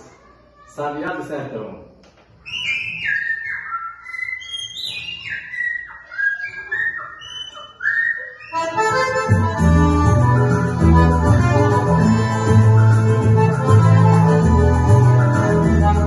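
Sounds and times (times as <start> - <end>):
whistled high notes: 2.4 - 9.3
accordion chords and bass: 8.5 - 16.0.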